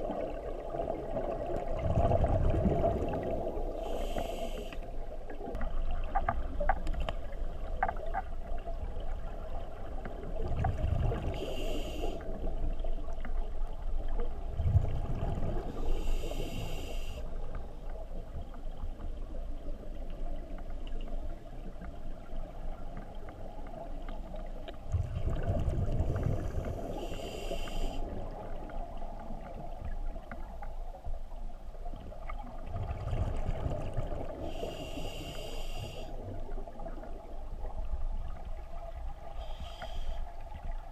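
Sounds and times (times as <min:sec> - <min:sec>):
diver breathing through regulator: 0:03.8 - 0:04.9, 0:11.4 - 0:12.2, 0:15.8 - 0:17.2, 0:26.4 - 0:28.1, 0:34.4 - 0:36.2, 0:39.4 - 0:40.3.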